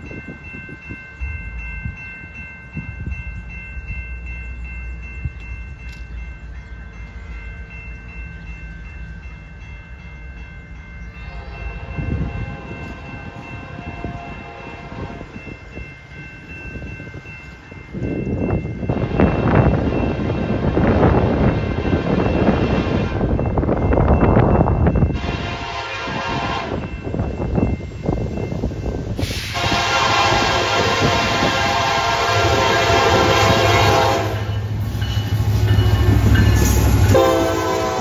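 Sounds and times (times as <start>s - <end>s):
crossing warning bell ringing: 0.0s - 38.0s
locomotive rumble: 10.9s - 38.0s
train rushing past: 11.1s - 38.0s
distant locomotive horn: 11.2s - 15.4s, 18.9s - 23.4s, 25.1s - 27.0s, 29.3s - 34.7s, 35.6s - 38.0s.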